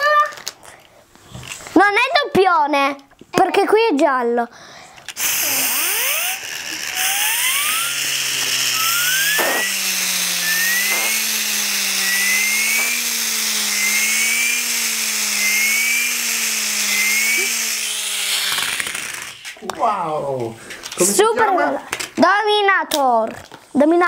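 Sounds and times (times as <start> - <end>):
toy mechanism whirring hum: 0.0 - 1.8, 4.7 - 19.7.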